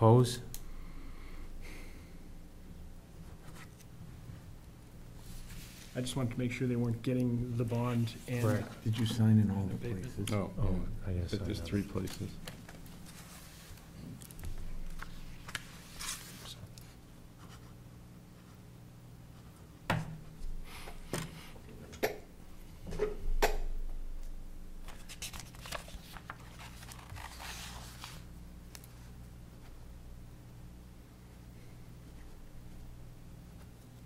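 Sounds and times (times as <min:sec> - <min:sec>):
steady low hum: 0:00.0 - 0:34.0
paper rustling: 0:08.0 - 0:09.3, 0:11.6 - 0:17.6, 0:24.8 - 0:29.0.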